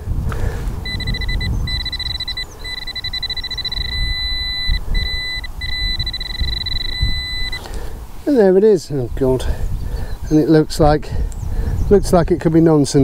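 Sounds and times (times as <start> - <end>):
pinpointer high-pitched beeping: 0.8 - 7.7.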